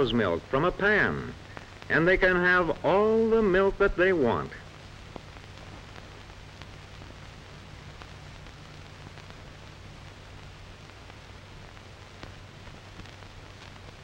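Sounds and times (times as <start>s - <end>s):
film soundtrack hiss: 0.0s - 14.0s
faint clicks: 5.1s - 14.0s.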